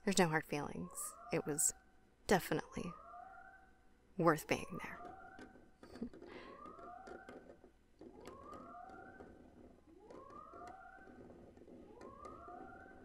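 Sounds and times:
rising whoop alarm: 8.2 - 9.4, 10.0 - 11.3.

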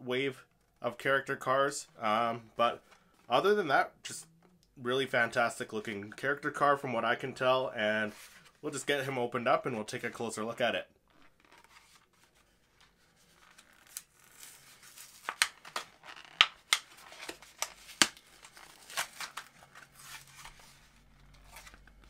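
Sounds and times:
cardboard and plastic tearing: 13.2 - 22.0.

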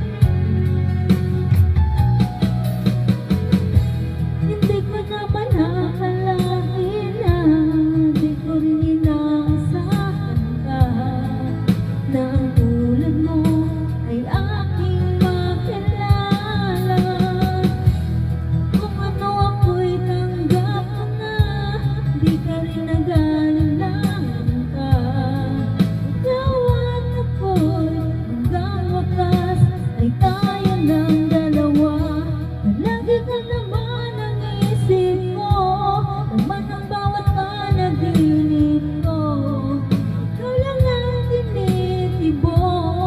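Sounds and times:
backing track with drum beat: 0.0 - 43.0
woman singing a ballad: 0.0 - 43.0.

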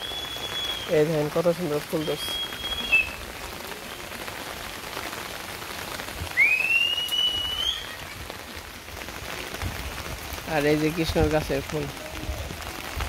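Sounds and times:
rain falling: 0.0 - 13.0
rising whistled note: 6.4 - 8.0.

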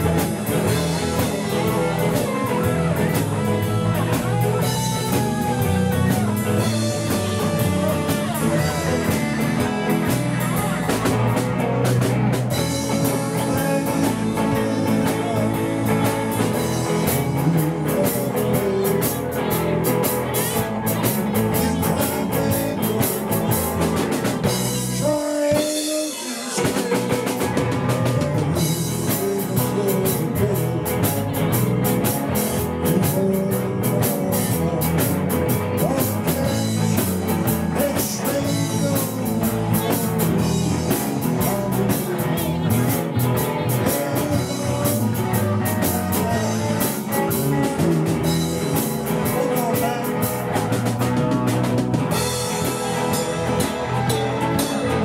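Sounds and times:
bass guitar: 0.0 - 55.0
drum kit: 0.0 - 55.0
electric guitars: 0.0 - 55.0.

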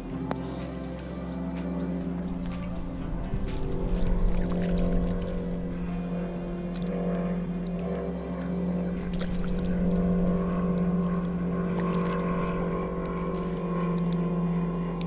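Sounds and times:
background music with bass line: 0.0 - 15.0
faint clicks and water splashes: 6.7 - 14.3.

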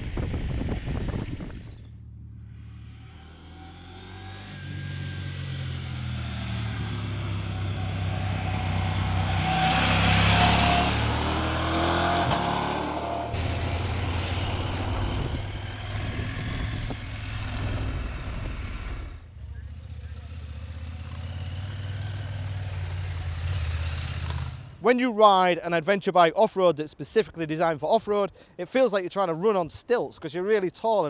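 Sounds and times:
motorcycle engine from on the bike: 0.0 - 24.8
motorcycle engine passing by: 0.2 - 24.8.

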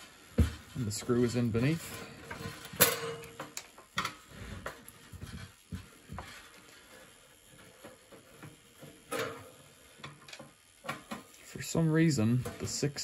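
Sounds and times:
small parts set down: 2.0 - 5.5.

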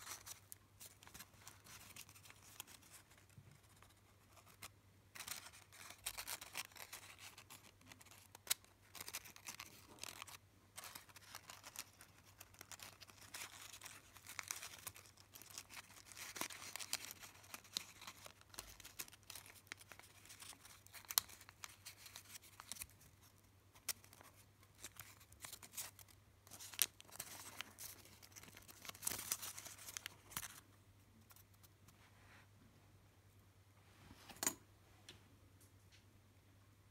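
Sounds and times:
paper rustling and crinkling: 0.0 - 30.7
sharp paper ticks: 3.8 - 23.0.

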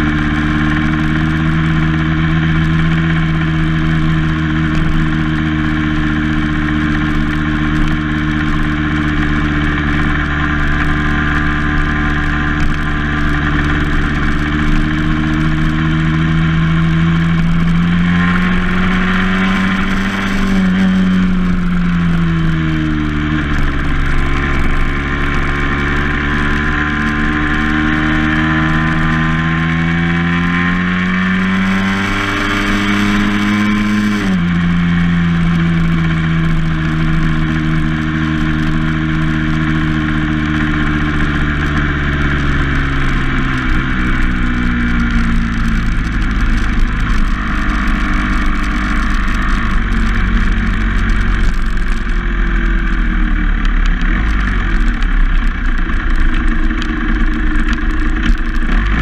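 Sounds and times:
road and wind noise: 0.0 - 59.0
vehicle engine revving: 0.0 - 59.0.

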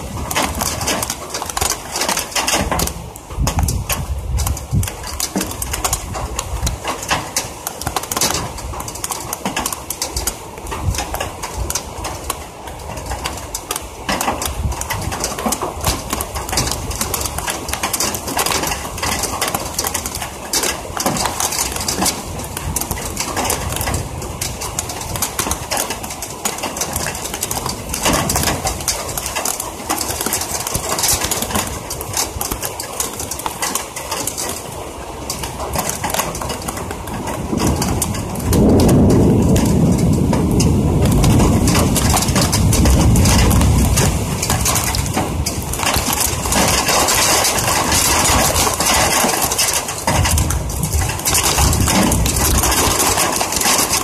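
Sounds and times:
heavy rain patter close to microphone: 0.0 - 54.0.

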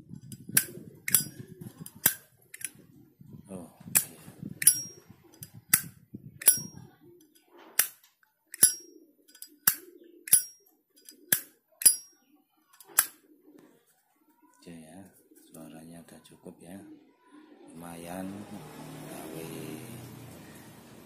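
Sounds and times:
lighter lid clicking: 0.6 - 1.4, 8.6 - 8.8, 9.7 - 10.6.

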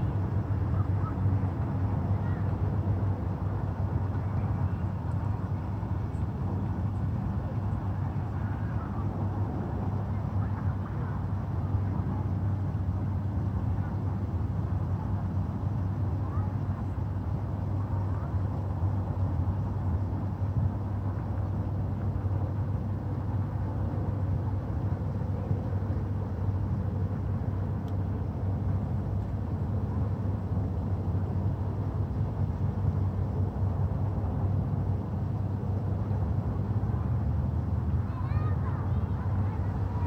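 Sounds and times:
low outdoor rumble: 0.0 - 40.0
faint tick: 27.8 - 28.1.

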